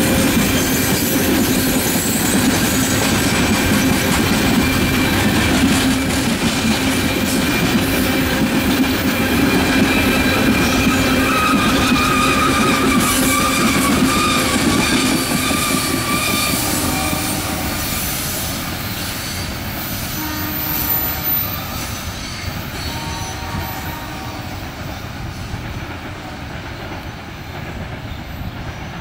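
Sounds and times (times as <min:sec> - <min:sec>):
freight train rumbling on rails: 0:00.0 - 0:29.0
thin wheel squeal: 0:10.6 - 0:24.0.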